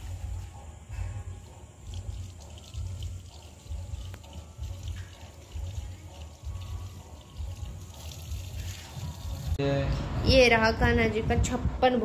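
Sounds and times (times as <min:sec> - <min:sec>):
water pouring and splashing: 0:01.8 - 0:09.6
wind rumbling on microphone: 0:09.1 - 0:12.0.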